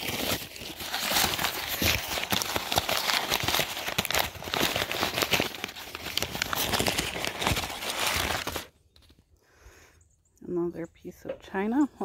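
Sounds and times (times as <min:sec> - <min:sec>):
packing wrap crinkling: 0:00.0 - 0:09.2.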